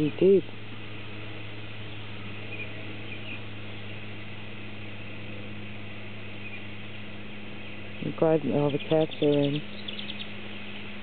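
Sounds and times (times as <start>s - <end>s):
low outdoor hum: 0.0s - 11.0s
faint bird chirps: 8.6s - 10.7s.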